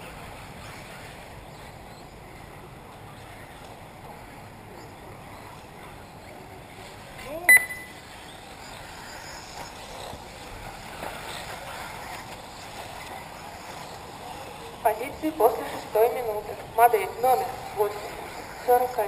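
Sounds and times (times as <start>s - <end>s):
outdoor background noise: 0.0s - 19.0s
high-pitched beep: 7.5s - 8.0s.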